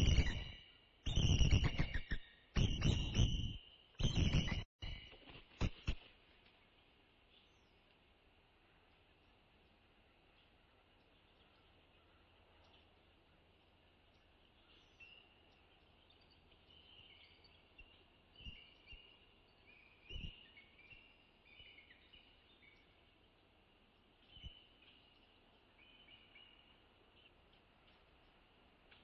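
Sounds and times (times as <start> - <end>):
eagle chittering chirps: 0.0 - 4.6.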